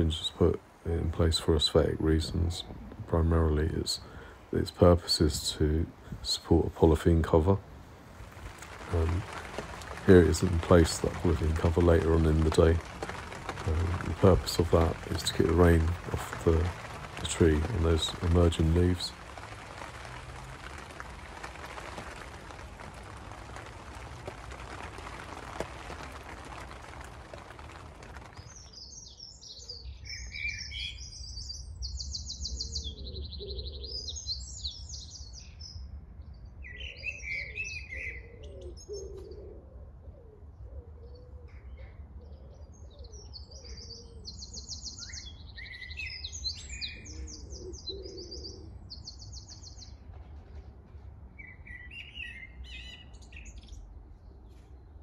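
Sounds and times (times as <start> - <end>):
songbirds singing: 0.0 - 55.0
rain on plastic cover: 7.0 - 29.1.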